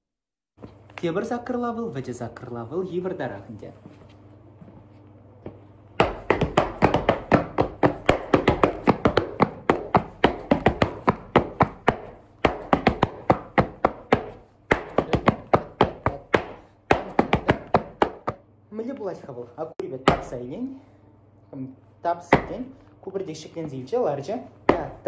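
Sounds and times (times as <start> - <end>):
boots stamping on hard floor: 5.4 - 18.4, 20.1 - 20.4, 22.3 - 22.6, 24.7 - 25.0.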